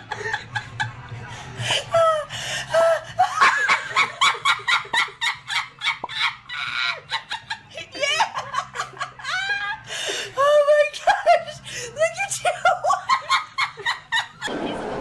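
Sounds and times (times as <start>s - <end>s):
person laughing hard: 1.8s - 11.6s.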